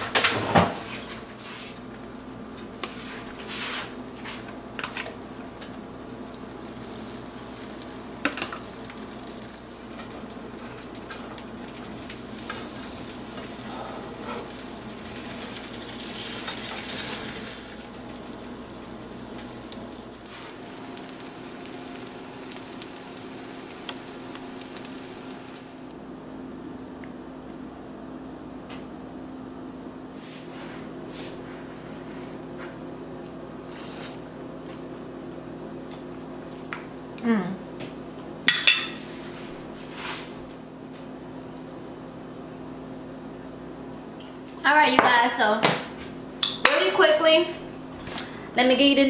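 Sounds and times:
omelet sizzling in a pan: 0:05.2 - 0:26.0.

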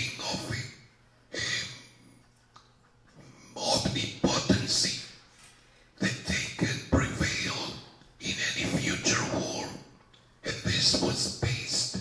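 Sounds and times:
man speaking into a microphone: 0:00.0 - 0:00.8, 0:10.4 - 0:12.0.

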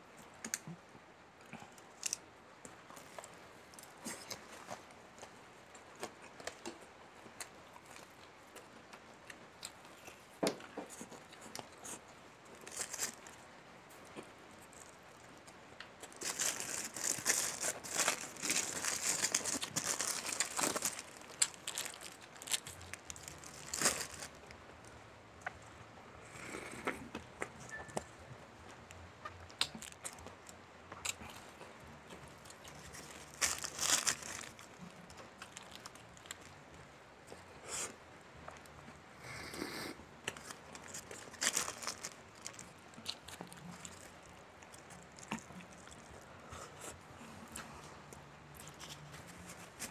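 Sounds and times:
crunchy eating and mouth clicks: 0:01.4 - 0:28.1, 0:28.7 - 0:39.0, 0:40.2 - 0:49.9
paper wrapper crinkling: 0:12.6 - 0:13.3, 0:16.0 - 0:24.5, 0:32.7 - 0:36.5, 0:40.4 - 0:42.8.

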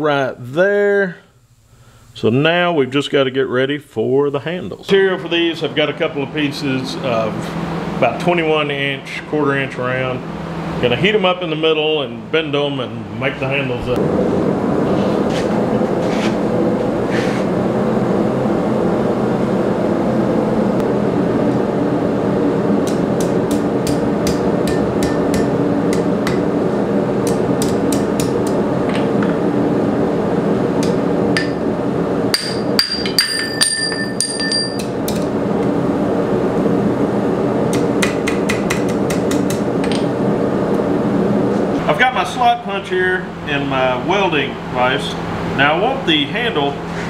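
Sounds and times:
steady loud noise: 0:01.4 - 0:47.0
hammer striking steel on anvil: 0:22.8 - 0:26.4, 0:30.8 - 0:31.6, 0:32.3 - 0:35.0, 0:37.7 - 0:40.1.

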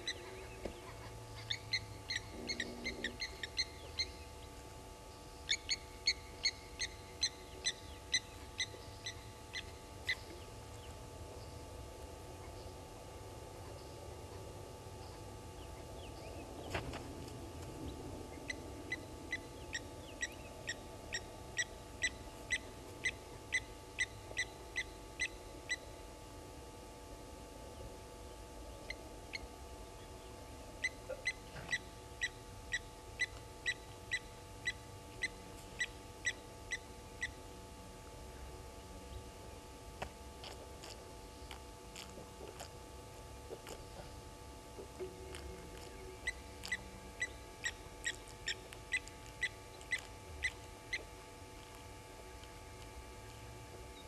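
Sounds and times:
lapwings giving metallic alarm calls: 0:01.4 - 0:04.1.

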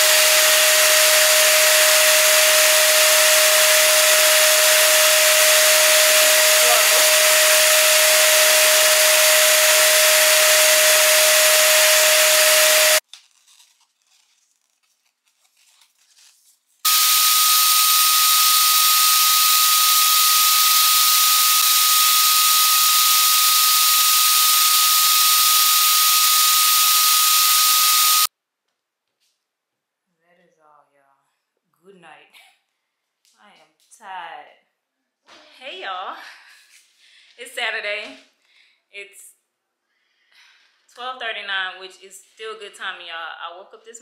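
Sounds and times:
air rushing from balloon pump: 0:00.0 - 0:13.0
pump motor whine: 0:00.0 - 0:13.0, 0:16.9 - 0:28.3.

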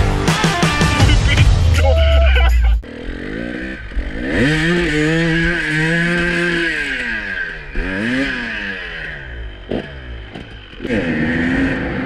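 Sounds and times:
two-stroke engine revving: 0:02.8 - 0:12.0.

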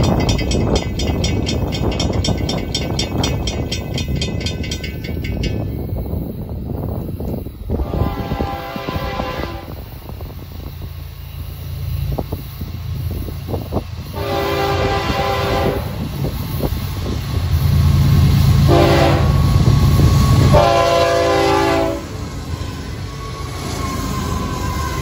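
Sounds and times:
wheels clicking on rail: 0:00.0 - 0:25.0
train horn blasts: 0:07.7 - 0:09.9, 0:14.1 - 0:16.0, 0:18.6 - 0:25.0.

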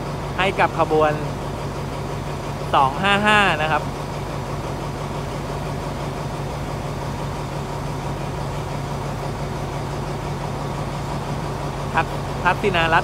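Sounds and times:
locomotive engine idling: 0:00.0 - 0:13.0.

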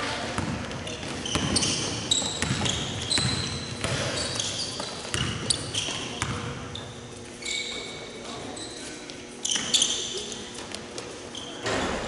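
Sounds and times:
basketball dribbling: 0:00.4 - 0:06.7
shoes squeaking on hardwood: 0:00.8 - 0:11.7.

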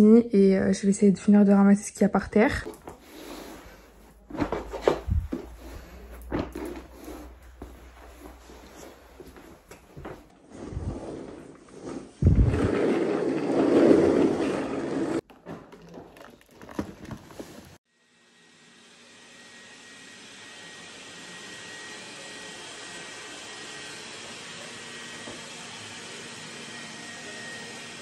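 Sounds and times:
office chair knocking and rustling: 0:04.3 - 0:06.9
robot vacuum cleaner whirring: 0:18.4 - 0:28.0.

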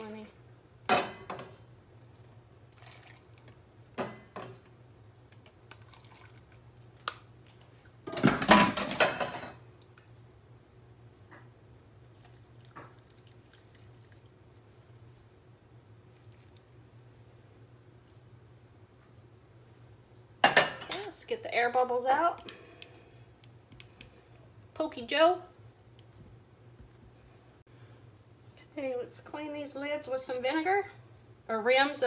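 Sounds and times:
faint liquid trickle: 0:02.7 - 0:03.6, 0:05.6 - 0:06.9, 0:12.1 - 0:15.0, 0:16.0 - 0:17.4
cookware clattering: 0:08.1 - 0:09.6, 0:20.4 - 0:21.1.

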